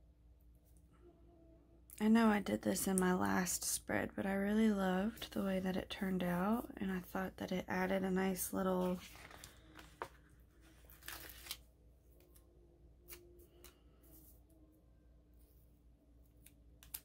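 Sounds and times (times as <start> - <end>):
paper rustling: 8.8 - 11.6.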